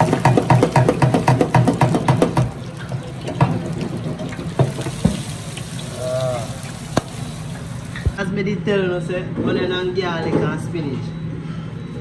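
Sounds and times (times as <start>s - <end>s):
fryer basket knocks: 0.0s - 2.6s
hot oil bubbling and crackling: 0.0s - 8.2s.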